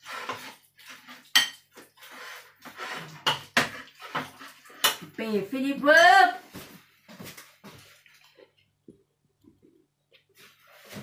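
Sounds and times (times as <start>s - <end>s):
spoon scraping in ceramic bowl: 0.0s - 5.0s.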